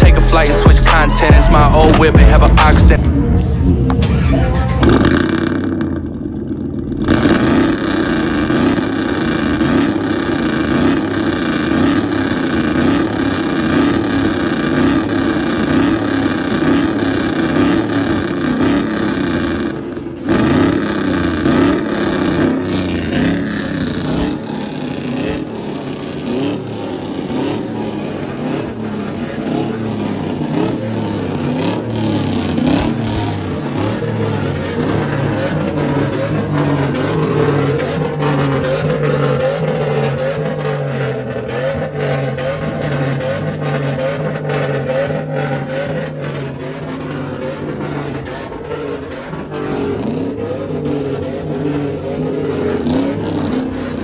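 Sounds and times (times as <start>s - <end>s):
truck engine revving: 0.0s - 54.0s.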